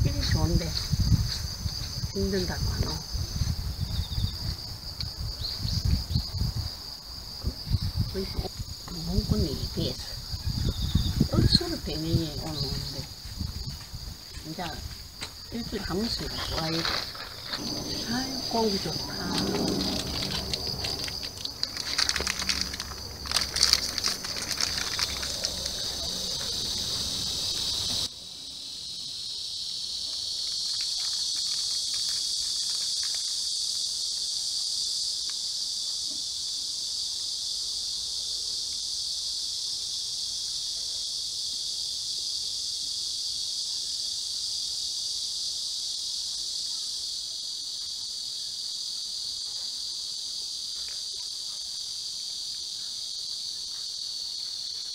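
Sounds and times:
insects chorus: 0:00.0 - 0:54.9
snack wrapper crinkling: 0:20.2 - 0:26.5.

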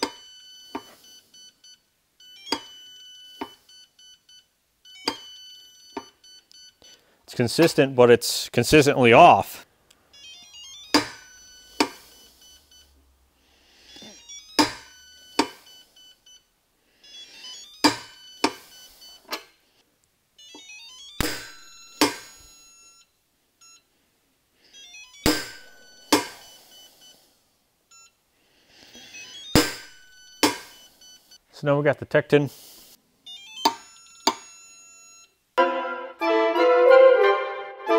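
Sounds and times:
electronic beeps: 0:00.0 - 0:07.0, 0:10.2 - 0:13.0, 0:13.8 - 0:16.5, 0:17.1 - 0:19.3, 0:24.8 - 0:27.2, 0:28.9 - 0:31.4, 0:33.3 - 0:35.3.

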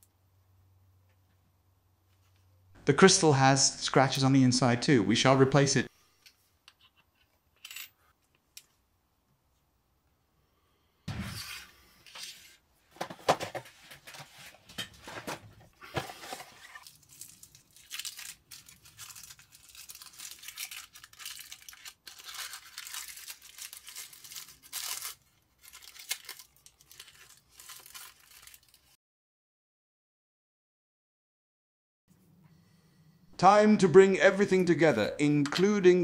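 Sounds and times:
paper or plastic crinkling: 0:13.7 - 0:29.0.

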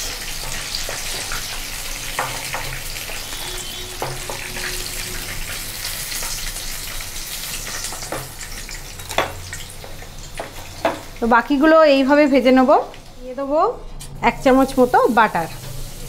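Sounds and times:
deep-frying sizzle and crackle: 0:00.0 - 0:16.0.

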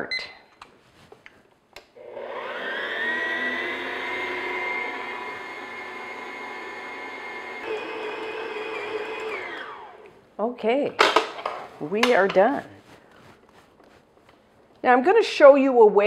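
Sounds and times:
stand mixer motor whine: 0:02.0 - 0:10.0.

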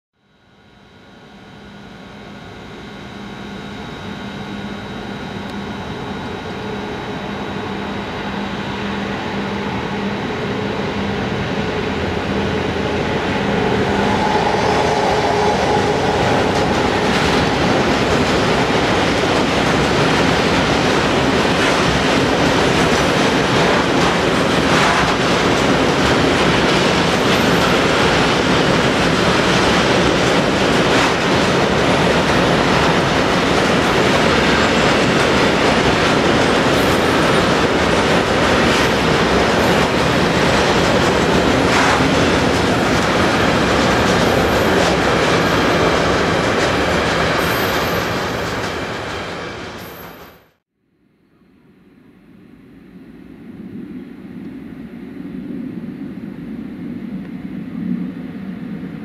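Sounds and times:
steady hum: 0:00.2 - 0:44.5, 0:50.9 - 0:59.0
freight train rumbling: 0:04.1 - 0:50.6.

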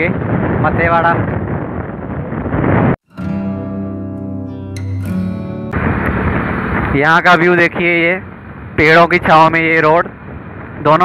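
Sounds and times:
guitar music: 0:03.0 - 0:06.9
vehicle moving on road: 0:05.1 - 0:09.2.

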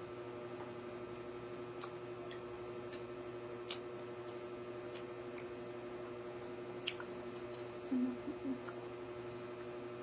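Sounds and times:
steady low hum: 0:00.0 - 0:10.0
wet chewing and finger licking: 0:01.8 - 0:05.6, 0:06.4 - 0:07.7.

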